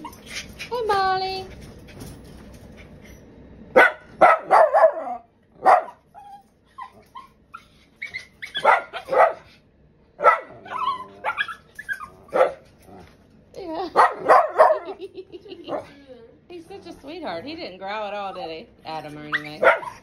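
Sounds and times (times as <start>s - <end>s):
small dog barking: 3.8s - 6.0s, 8.5s - 9.5s, 10.2s - 11.6s, 12.3s - 12.6s, 14.0s - 15.0s, 19.4s - 20.0s.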